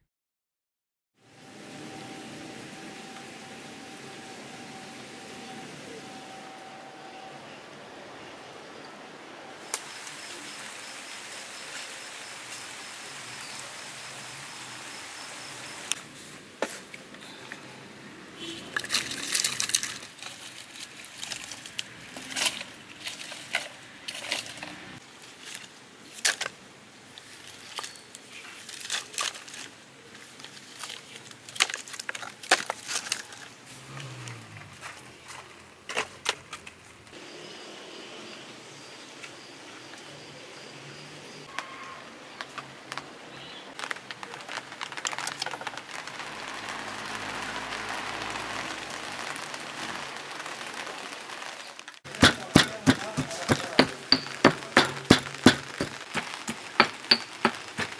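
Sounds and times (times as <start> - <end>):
steady outdoor hiss: 1.2 - 57.9
firewood sticks clattering: 18.7 - 26.6, 27.2 - 33.6, 43.8 - 46.1, 51.9 - 57.9.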